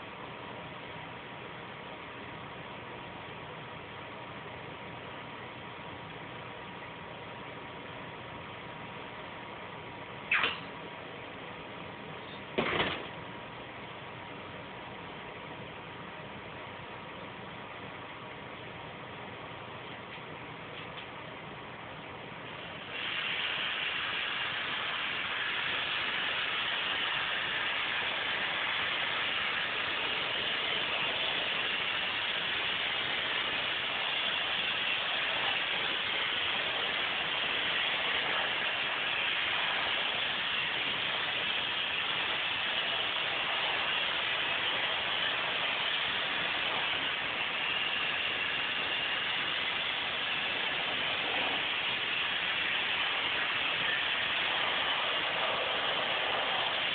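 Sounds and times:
rush of air in spray booth: 0:22.4 - 0:56.9.

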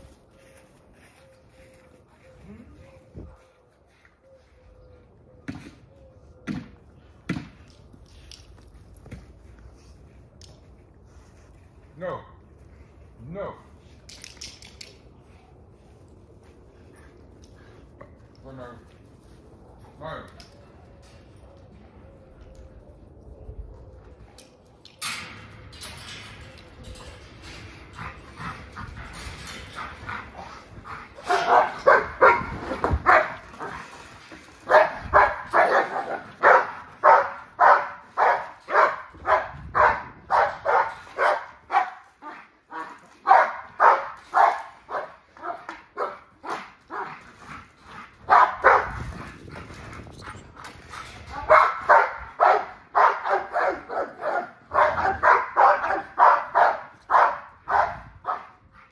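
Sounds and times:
dogs barking: 0:31.1 - 0:33.8, 0:34.6 - 0:47.2, 0:48.2 - 0:49.1, 0:51.3 - 0:58.6.

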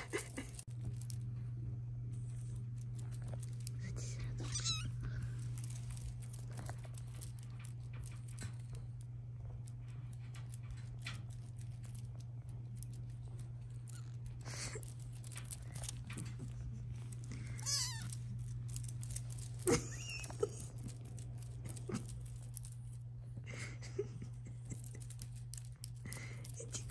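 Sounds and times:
kitten mewing: 0:04.4 - 0:05.0, 0:17.4 - 0:18.2.

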